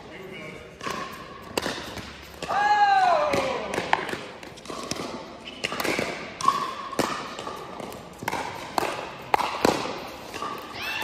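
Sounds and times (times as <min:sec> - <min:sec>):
ball bouncing on court: 0:00.7 - 0:11.0.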